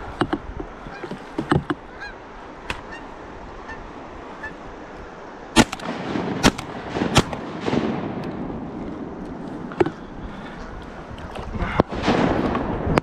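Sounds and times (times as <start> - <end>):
geese honking: 0.8 - 4.7
shotgun shots: 5.6 - 8.2.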